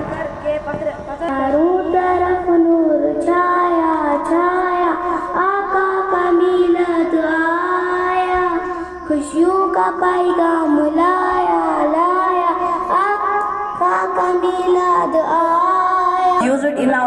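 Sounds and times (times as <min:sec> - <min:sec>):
girl singing a chant: 0:00.0 - 0:17.0
breath: 0:05.0 - 0:05.4, 0:08.6 - 0:09.1.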